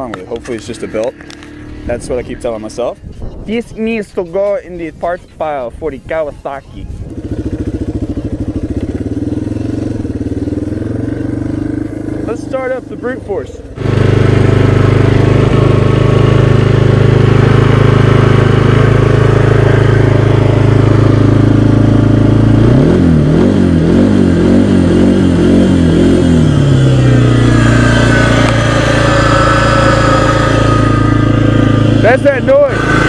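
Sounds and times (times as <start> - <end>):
atv engine idling and revving: 0.0 - 33.0
grinding noise from belt drive: 27.0 - 33.0.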